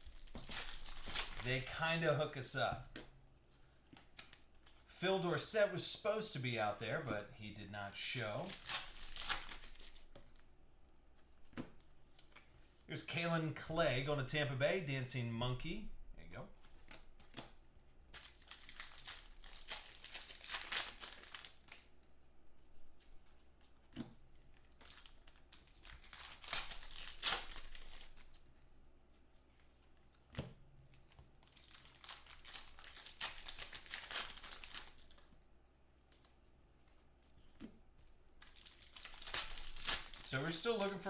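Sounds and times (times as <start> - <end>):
foil wrappers crinkling and tearing: 0.0 - 1.9, 8.2 - 10.1, 18.2 - 21.8, 24.8 - 28.4, 31.4 - 35.2, 38.4 - 41.0
cards being handled: 0.0 - 4.9, 7.9 - 10.5, 11.2 - 12.8, 16.6 - 22.0, 23.0 - 35.4, 36.0 - 41.0.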